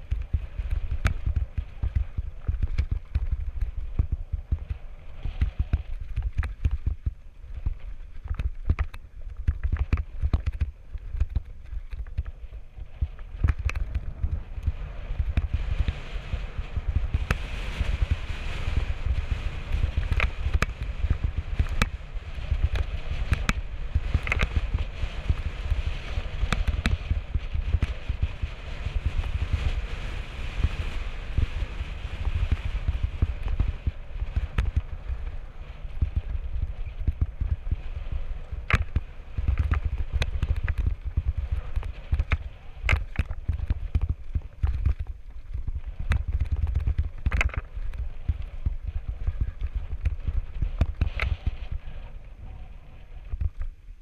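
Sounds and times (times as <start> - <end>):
bike knocks and rattles: 0.0 - 12.4, 38.5 - 51.6
wind rumble on microphone: 0.0 - 54.0.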